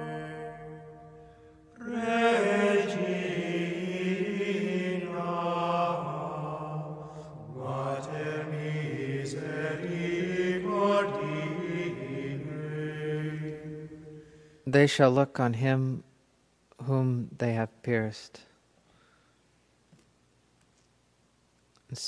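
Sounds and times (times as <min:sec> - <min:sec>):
voices chanting: 0:00.0 - 0:14.4.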